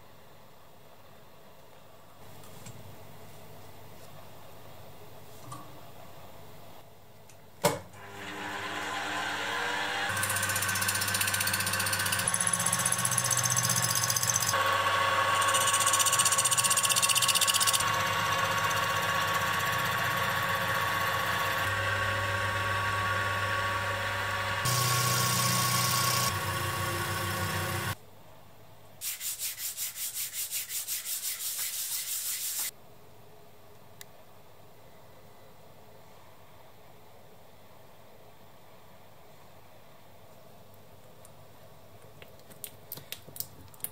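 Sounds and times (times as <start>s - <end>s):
milling machine motor whining: 8.0s - 28.0s.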